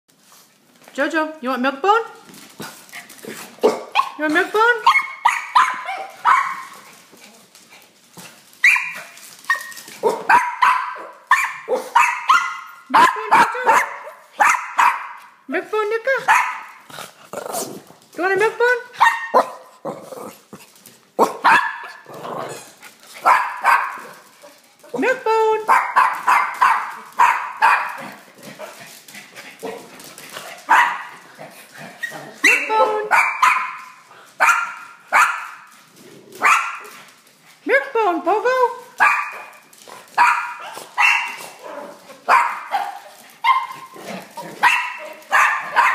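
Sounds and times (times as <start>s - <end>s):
small dogs barking: 3.6s - 4.2s, 4.8s - 6.9s, 8.6s - 15.3s, 16.3s - 16.9s, 19.0s - 19.8s, 21.2s - 22.1s, 23.2s - 24.6s, 25.7s - 28.2s, 30.7s - 31.2s, 32.0s - 35.7s, 36.4s - 37.0s, 39.0s - 45.9s.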